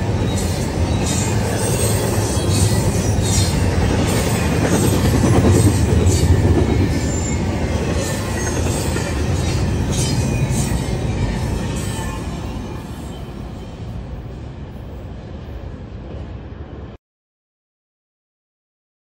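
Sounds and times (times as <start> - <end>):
train wheels rumbling on rail: 0.0 - 16.9
high wheel squeals: 5.6 - 13.8.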